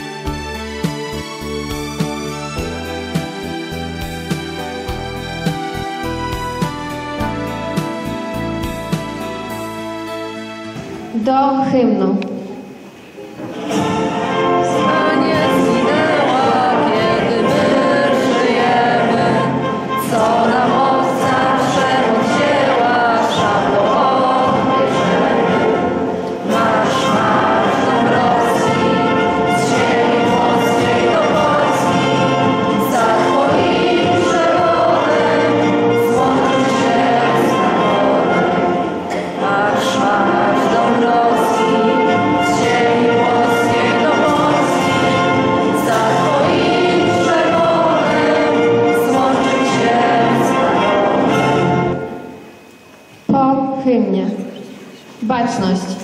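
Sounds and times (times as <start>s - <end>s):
instrumental accompaniment: 0.0s - 53.8s
group singing an anthem: 13.4s - 52.8s.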